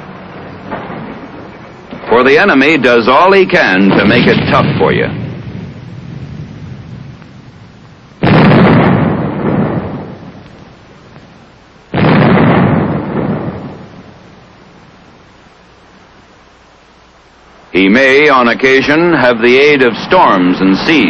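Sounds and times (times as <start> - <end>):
loud explosions: 0.0 - 15.2.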